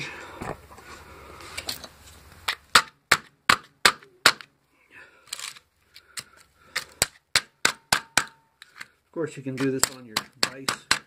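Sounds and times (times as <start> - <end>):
hammer striking steel: 7.4 - 8.5.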